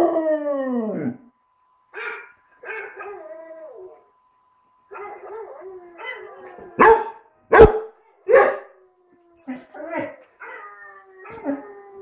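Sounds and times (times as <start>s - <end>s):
dog howling and whining: 0.0s - 1.3s, 2.0s - 4.1s, 4.9s - 6.9s, 7.9s - 12.0s
dog barking: 6.8s - 8.7s.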